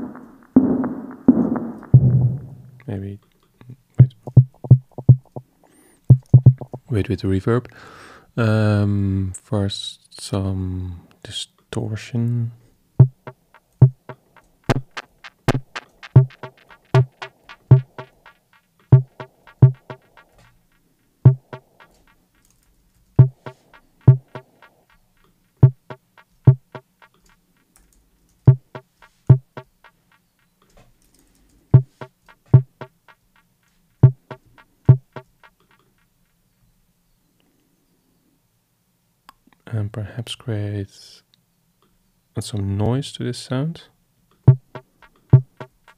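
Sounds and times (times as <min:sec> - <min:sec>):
distorted electronic clicks with thuds: 0:00.0 - 0:02.5, 0:04.0 - 0:05.4, 0:06.1 - 0:06.8, 0:13.0 - 0:22.5, 0:23.2 - 0:27.5, 0:28.4 - 0:30.6, 0:31.8 - 0:35.9, 0:44.4 - 0:45.9.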